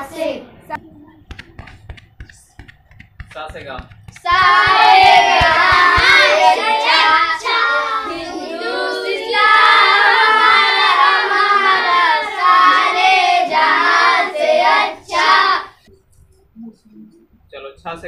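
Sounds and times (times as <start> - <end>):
boys singing in unison: 4.2 - 15.8.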